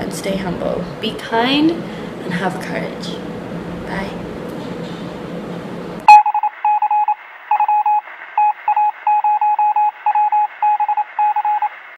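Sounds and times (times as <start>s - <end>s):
electronic beeping: 6.1s - 11.7s.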